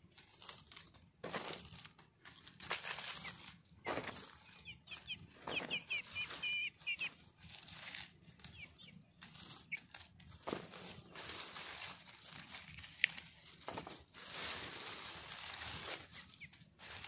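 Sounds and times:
leafy branches rustling: 0.0 - 17.0
short high bird chirps: 4.4 - 7.2.

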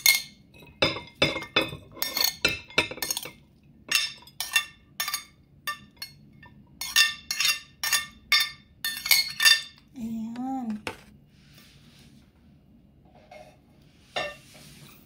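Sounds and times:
metal spoon clinking ceramic bowl: 0.0 - 9.8.

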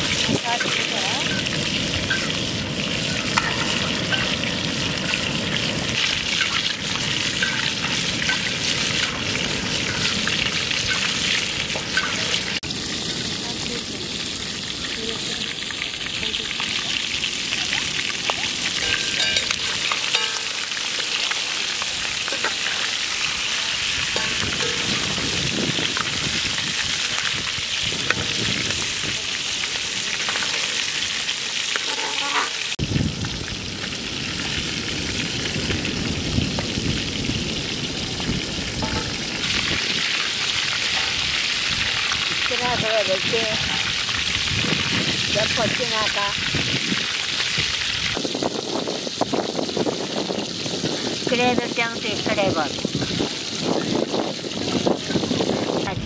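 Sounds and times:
oil bubbling: 0.0 - 55.9
fish deep-frying in hot oil: 0.0 - 56.0.

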